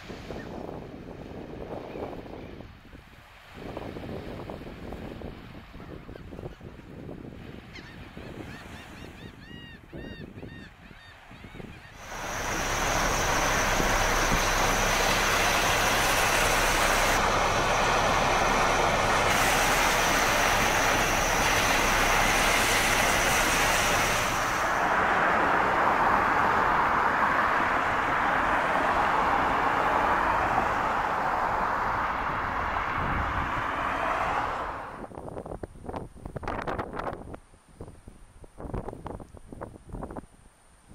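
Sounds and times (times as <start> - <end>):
wind: 0.0 - 40.9
heavy rain: 12.0 - 35.0
traffic on a flooded road: 12.0 - 35.1.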